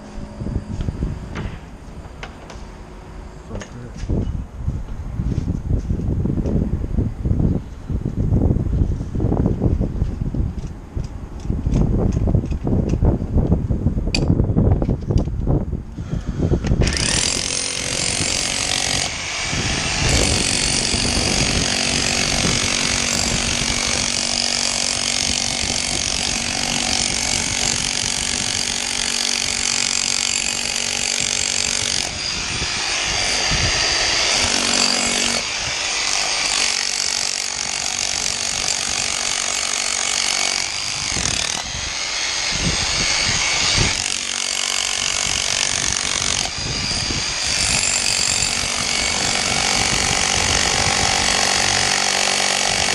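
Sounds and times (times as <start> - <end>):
rotary hammer chiselling concrete: 16.6 - 52.9.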